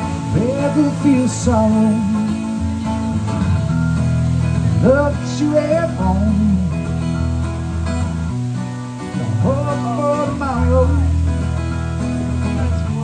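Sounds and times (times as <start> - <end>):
man singing: 0.0 - 3.5, 4.6 - 7.2, 9.1 - 13.0
acoustic guitar chords: 0.0 - 13.0.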